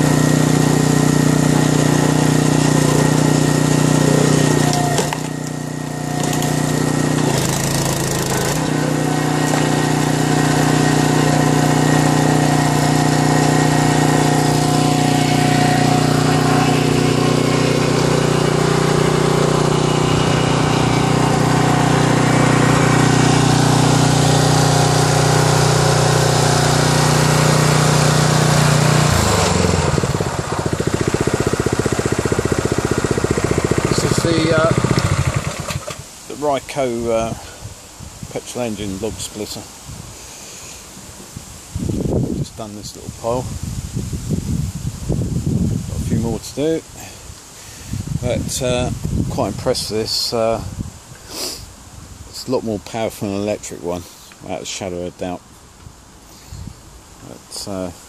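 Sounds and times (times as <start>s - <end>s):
log splitter engine running: 0.0s - 37.4s.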